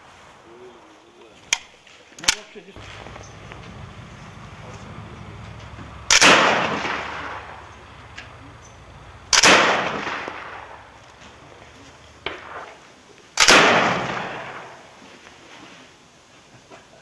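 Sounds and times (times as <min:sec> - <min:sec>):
grenade launcher shots echoing: 0:06.0 - 0:11.0, 0:12.2 - 0:12.8, 0:13.4 - 0:14.9.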